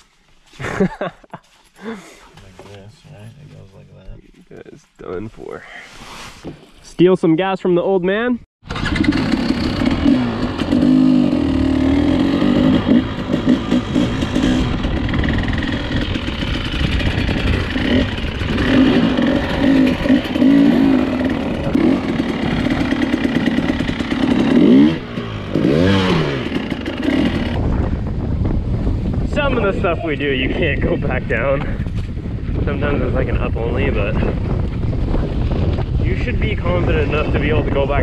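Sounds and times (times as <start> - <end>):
dirt bike engine revving: 8.6 - 27.8.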